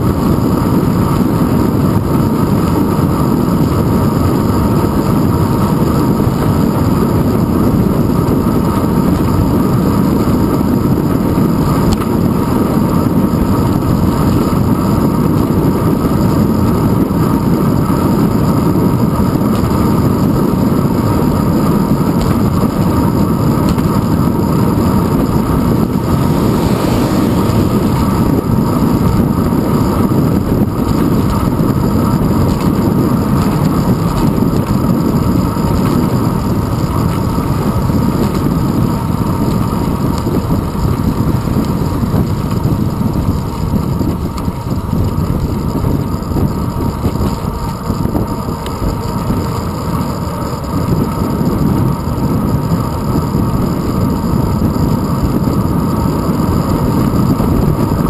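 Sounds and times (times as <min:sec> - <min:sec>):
wind rush: 0:00.0 - 0:49.5
bicycle road rumble: 0:00.0 - 0:58.0.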